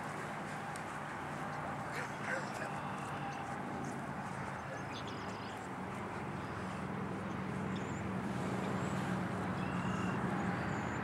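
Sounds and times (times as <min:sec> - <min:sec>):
outdoor background noise: 0:00.0 - 0:11.0
steady low engine drone: 0:00.0 - 0:11.0.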